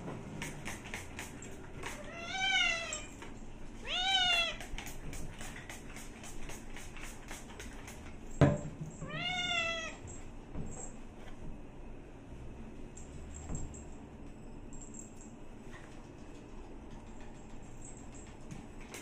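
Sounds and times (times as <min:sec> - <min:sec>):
cat meowing: 0:03.8 - 0:04.6, 0:09.0 - 0:10.0.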